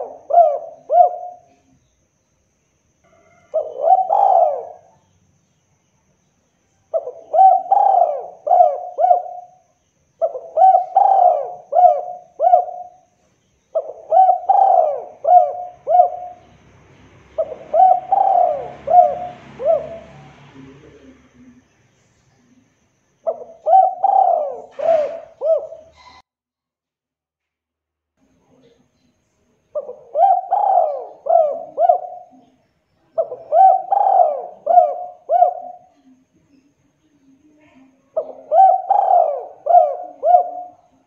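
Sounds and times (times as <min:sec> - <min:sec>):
dove cooing: 0:00.0 - 0:01.8, 0:03.1 - 0:05.0, 0:06.9 - 0:21.6, 0:23.2 - 0:26.2, 0:29.7 - 0:36.2, 0:38.0 - 0:41.0.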